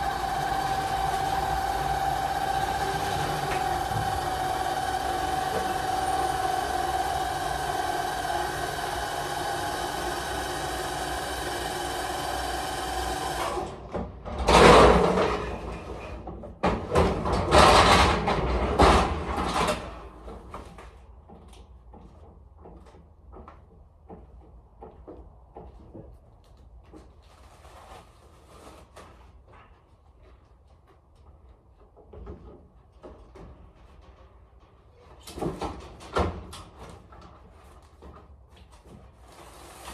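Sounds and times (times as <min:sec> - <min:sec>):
pallet jack clattering on metal: 0:14.3 - 0:20.1.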